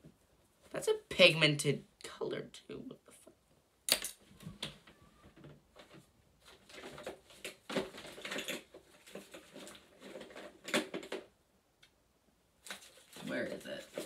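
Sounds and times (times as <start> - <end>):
plastic cases clicking and rattling: 5.4 - 11.3.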